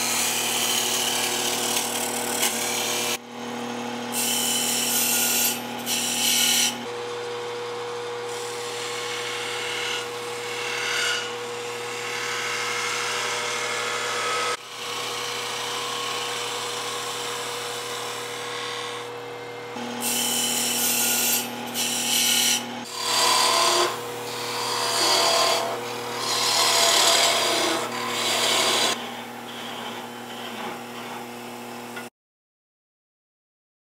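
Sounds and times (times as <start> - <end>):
wood lathe motor hum: 0.0 - 32.0
turning tool scraping wood: 22.4 - 31.3.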